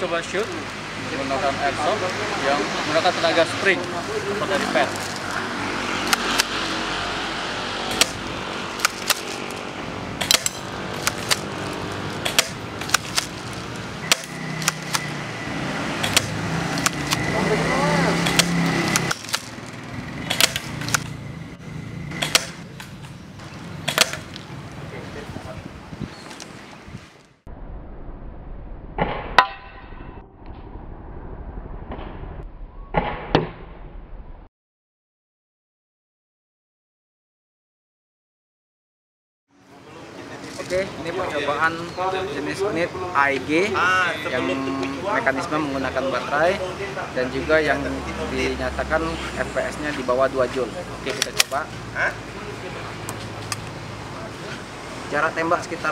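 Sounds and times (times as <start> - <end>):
pellets cracking on target: 7.9 - 15.1, 16.0 - 17.2, 18.2 - 21.2, 22.2 - 23.2, 23.8 - 24.4
airsoft shotgun clicks and snaps: 8.8 - 9.5, 10.2 - 11.5, 12.2 - 13.5, 14.1 - 15.1, 16.0 - 17.2, 18.2 - 19.6, 20.3 - 21.2, 22.2 - 23.2, 23.9 - 24.4, 51.1 - 51.6
airsoft shotgun pop: 23.9 - 24.2.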